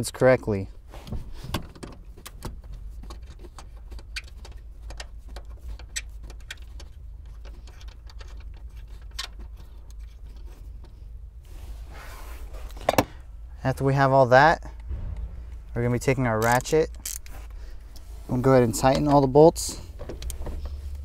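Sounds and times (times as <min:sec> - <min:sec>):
steady low rumble: 0:10.2 - 0:21.0.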